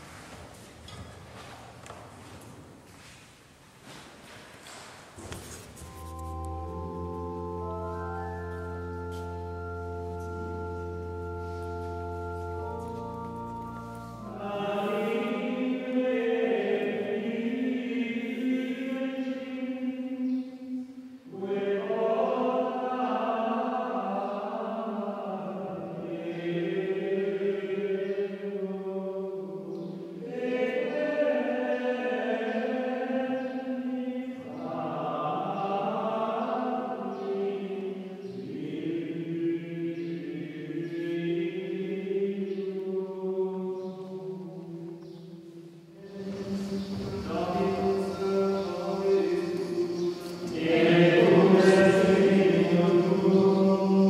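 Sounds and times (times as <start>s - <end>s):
organ chord: 5.8s - 16.0s, 46.0s - 54.0s
men singing chant in unison: 21.3s - 44.3s, 46.0s - 54.0s.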